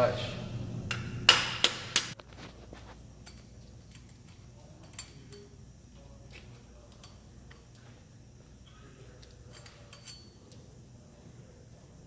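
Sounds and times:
faint metal clinks: 3.1 - 10.9.

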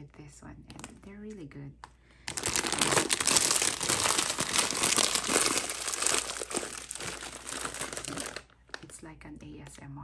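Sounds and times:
plastic bags crinkling: 2.2 - 10.0.

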